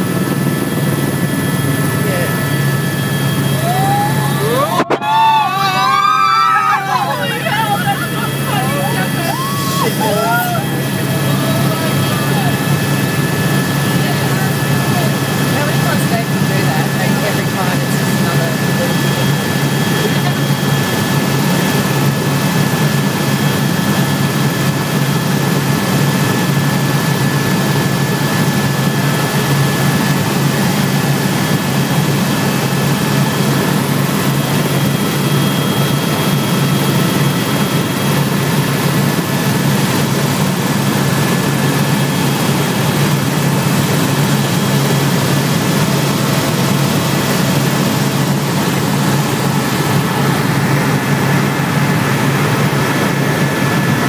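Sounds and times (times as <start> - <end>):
helicopter engine and rotor drone: 0.0 - 54.0.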